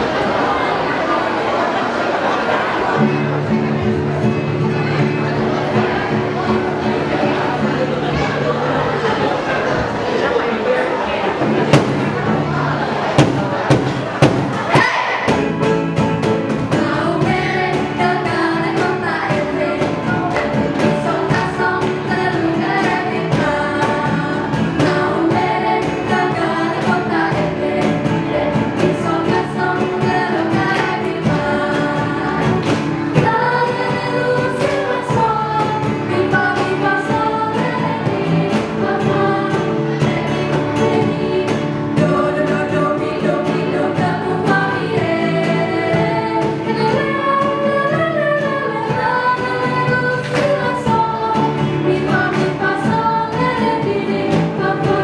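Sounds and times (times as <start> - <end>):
young voices singing together: 0.0 - 55.0
instrumental accompaniment with beat: 11.6 - 55.0.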